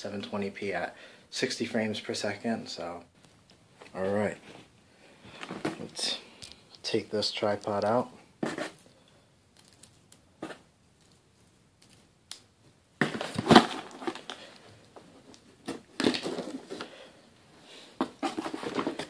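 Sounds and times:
cardboard rustling and scraping: 8.4s - 8.8s, 13.0s - 17.0s, 17.9s - 19.0s.

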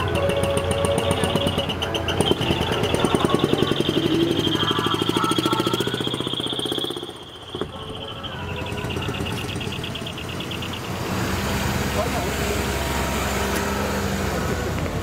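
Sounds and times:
low engine hum: 0.0s - 15.0s
truck diesel engine pulsing: 0.0s - 15.0s.

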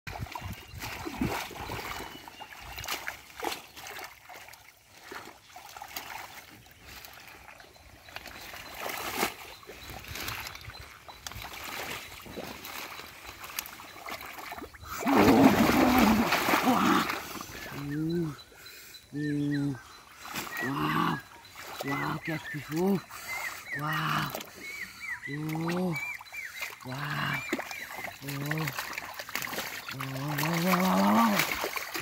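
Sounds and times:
hands splashing in muddy water: 0.1s - 18.0s, 20.2s - 32.0s
water trickling: 0.1s - 18.4s, 25.2s - 32.0s.

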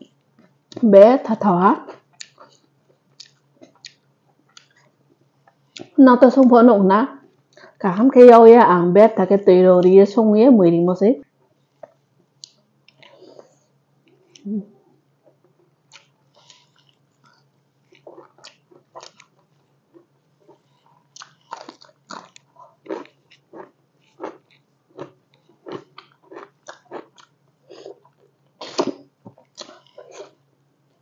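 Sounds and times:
faint low hum: 0.0s - 31.0s
wet chewing and mouth sounds: 1.9s - 6.0s, 11.8s - 14.5s, 15.3s - 31.0s.

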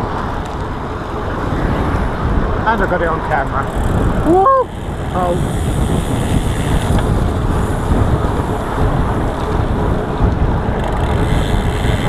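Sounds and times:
tyre noise on road: 0.0s - 12.0s
wind buffeting microphone: 0.0s - 12.0s.

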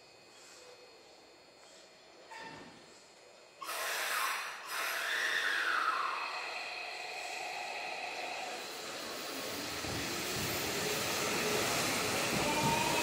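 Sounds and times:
compressed air hiss: 3.6s - 13.0s
electric train motor whine: 3.7s - 13.0s.

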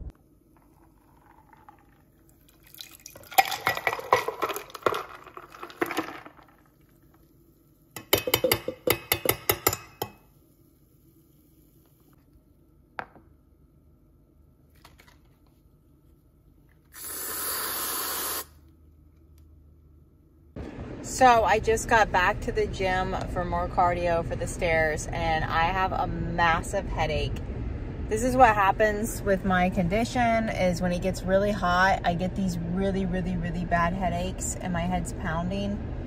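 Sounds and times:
pitcher and spoon knocking on mug: 8.0s - 10.2s
whipped cream can spraying: 16.9s - 18.5s.

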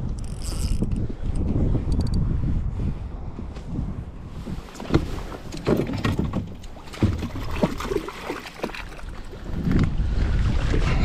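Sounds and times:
water splashing and sloshing: 4.3s - 11.0s
knocks and clunks: 4.7s - 8.0s.

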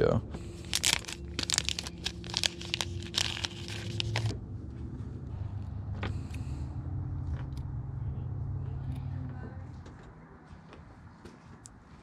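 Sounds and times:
steady low hum: 0.0s - 12.0s
plastic packet crinkling: 0.6s - 4.4s.

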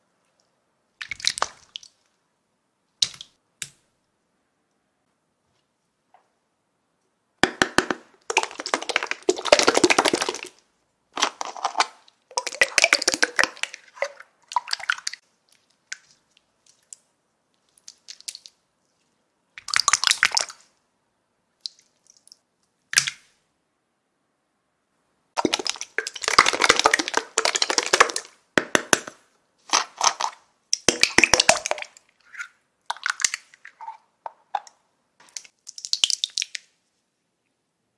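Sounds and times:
slime squelching and popping: 1.0s - 2.0s, 7.4s - 10.6s, 11.2s - 17.1s, 25.4s - 32.1s, 32.9s - 36.8s.

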